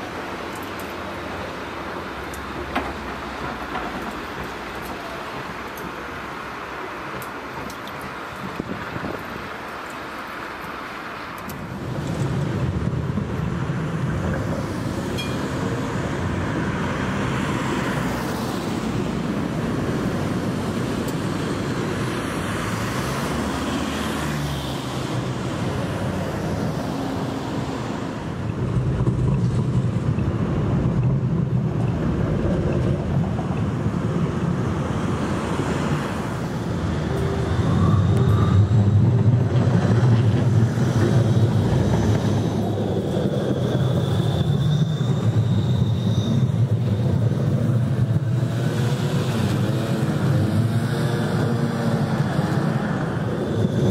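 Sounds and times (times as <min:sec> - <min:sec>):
tram passing: 0:00.0 - 0:53.9
cars driving past: 0:11.7 - 0:53.9.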